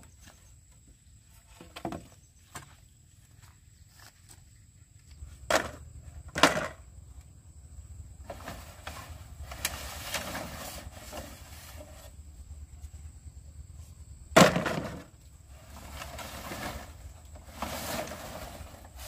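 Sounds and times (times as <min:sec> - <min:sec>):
bamboo poles rattling: 0:01.5 - 0:02.8, 0:05.4 - 0:06.9, 0:14.4 - 0:19.0.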